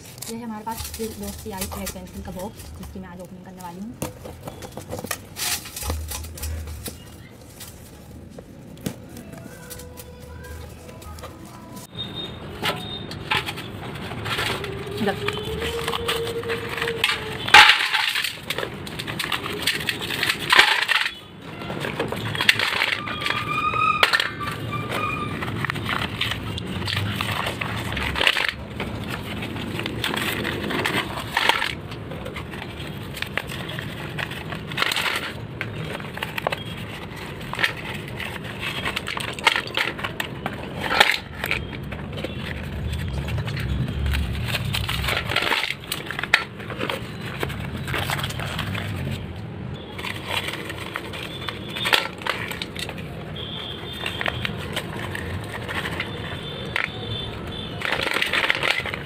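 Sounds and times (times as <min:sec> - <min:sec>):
sticks clattering into metal bowl: 0:00.0 - 0:03.0, 0:03.6 - 0:08.0, 0:12.6 - 0:32.0
paper wrappers crinkling and tearing: 0:00.0 - 0:59.0.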